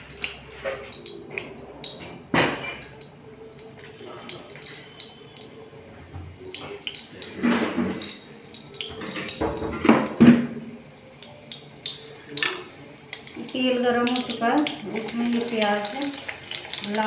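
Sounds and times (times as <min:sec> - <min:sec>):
steel pots clattering on counter: 0:08.8 - 0:10.6.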